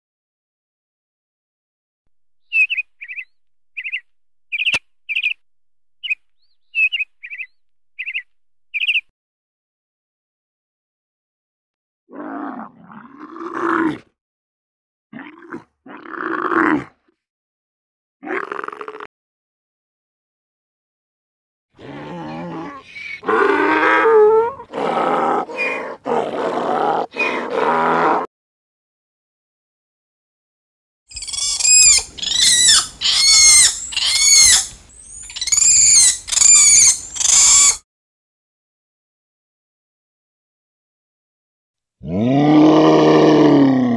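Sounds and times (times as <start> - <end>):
loud animal calls: 31.1 - 37.8.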